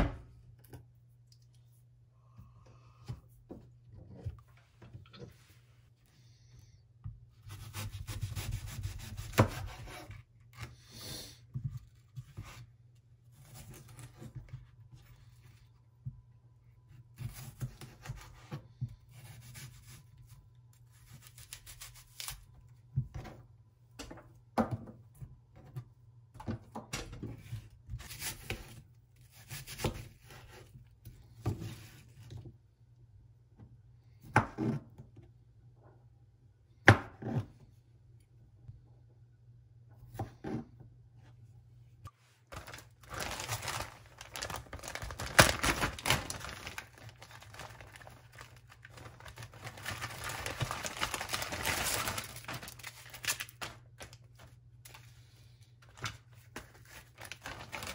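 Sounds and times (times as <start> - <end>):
knife slicing apple: 7.4 - 10.8.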